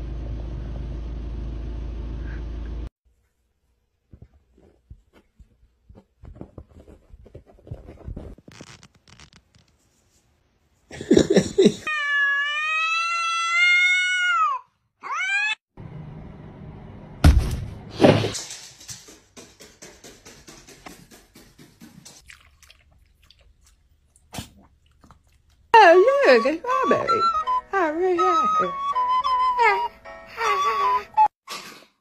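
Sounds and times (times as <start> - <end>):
cat yowling: 11.9 - 15.6
loud thumps: 17.2 - 18.8.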